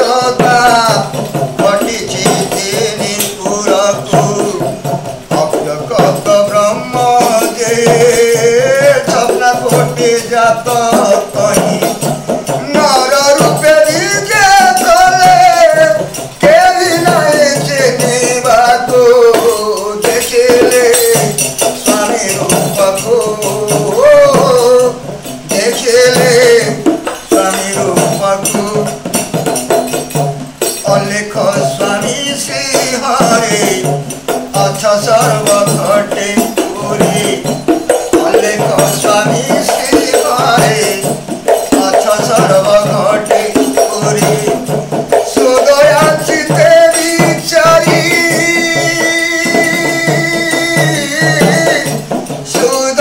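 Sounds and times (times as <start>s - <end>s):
frame drum: 0.0s - 53.0s
man singing devotional song: 0.0s - 53.0s
small hand cymbals: 0.0s - 53.0s.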